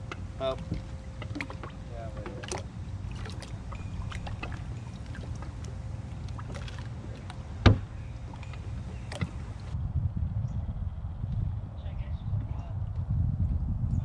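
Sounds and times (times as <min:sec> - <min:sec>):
knocks and clicks on boat deck: 0:00.0 - 0:09.8
steady low rumble: 0:00.0 - 0:14.0
sharp thump: 0:07.6 - 0:07.9.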